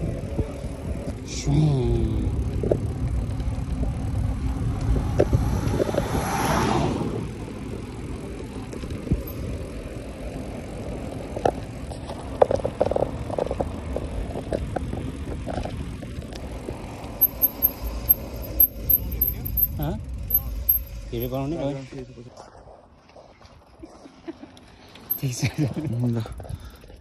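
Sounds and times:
bike tyres on tarmac: 0:00.0 - 0:27.0
bike clicks and rattles: 0:02.0 - 0:06.1, 0:07.3 - 0:21.4, 0:24.5 - 0:27.0.

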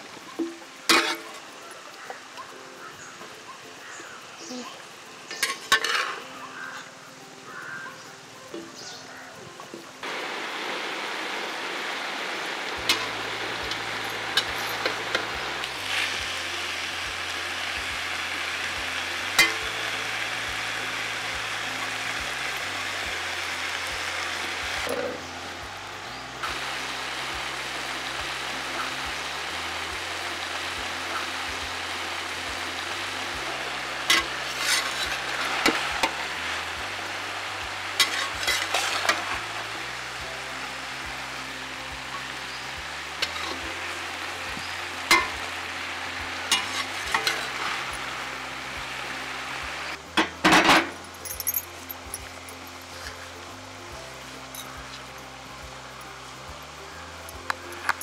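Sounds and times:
vegetables sizzling in a pan: 0:00.0 - 0:58.0
metal spatula scraping a pan: 0:00.9 - 0:01.4, 0:05.3 - 0:06.3, 0:34.1 - 0:36.2, 0:38.0 - 0:39.3, 0:46.5 - 0:47.8.

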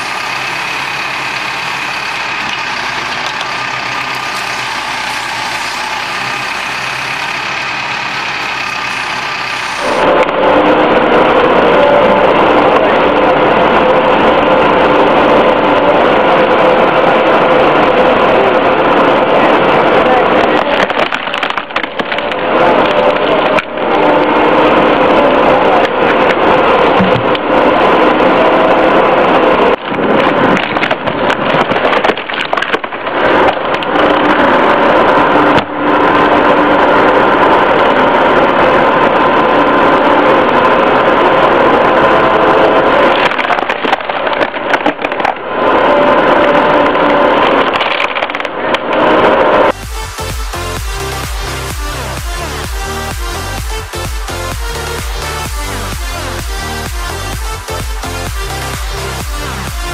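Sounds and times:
excavator engine and hydraulics: 0:00.0 - 0:59.9
wood cracking and splintering: 0:20.6 - 0:23.7, 0:29.7 - 0:34.5, 0:43.1 - 0:45.4, 0:47.4 - 0:48.9.

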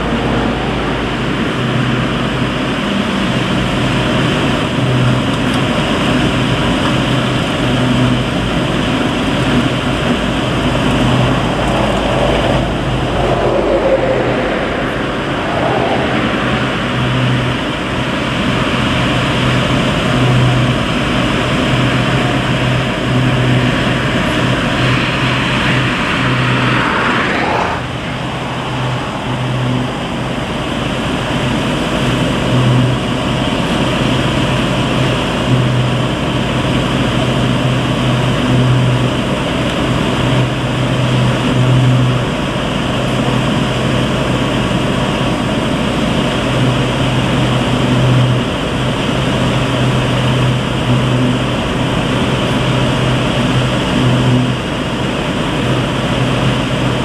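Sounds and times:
higher rushing noise: 0:00.0 - 0:03.5, 0:09.0 - 0:19.4, 0:22.5 - 0:33.1
machinery droning hum: 0:00.0 - 0:57.0.

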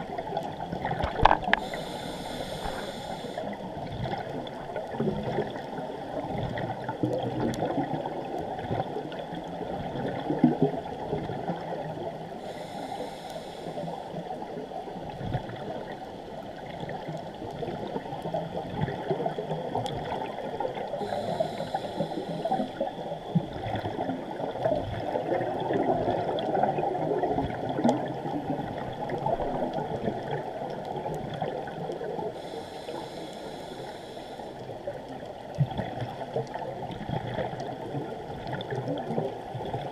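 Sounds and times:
water and exhaust bubbles gurgling: 0:00.0 - 0:39.9
regulator hiss on inhale: 0:01.4 - 0:03.7, 0:12.4 - 0:14.2, 0:20.9 - 0:23.2, 0:32.3 - 0:34.7.

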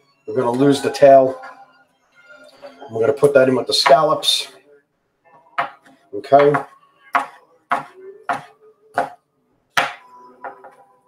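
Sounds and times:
knife chopping on cutting board: 0:05.6 - 0:09.2.

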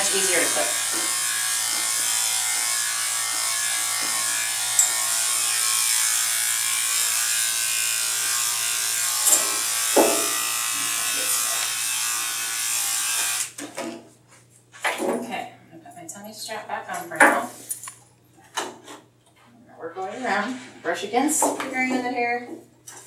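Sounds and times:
electric clippers humming: 0:00.0 - 0:13.6.

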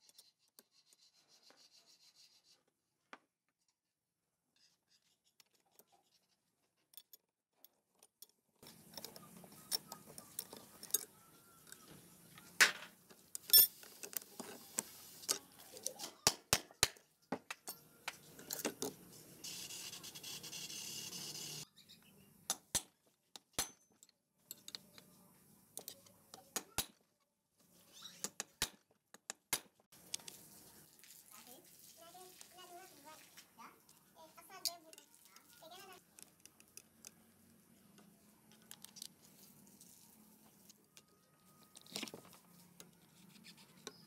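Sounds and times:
metal tools clinking: 0:08.1 - 0:11.8, 0:13.4 - 0:14.2.

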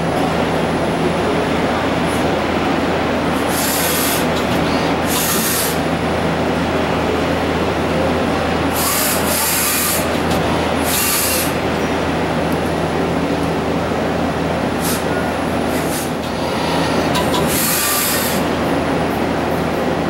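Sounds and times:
lathe machine drone: 0:15.9 - 0:20.0
rough metal cutting noise: 0:16.0 - 0:18.5.

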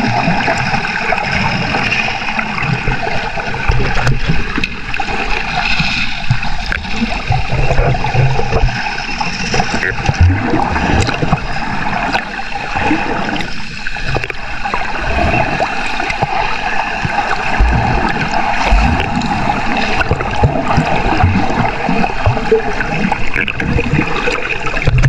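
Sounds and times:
water sloshing and gurgling: 0:00.0 - 0:25.0
low thumps: 0:17.6 - 0:19.3.

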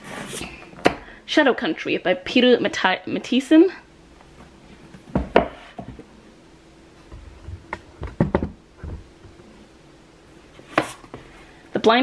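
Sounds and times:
books knocking on wooden shelf: 0:05.1 - 0:06.0, 0:07.1 - 0:09.4.

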